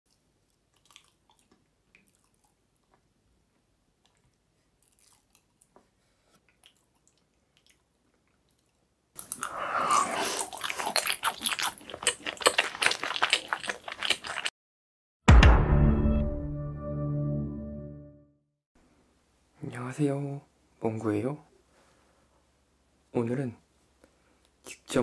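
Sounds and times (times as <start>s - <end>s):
loud chewing: 6.5s - 14.5s.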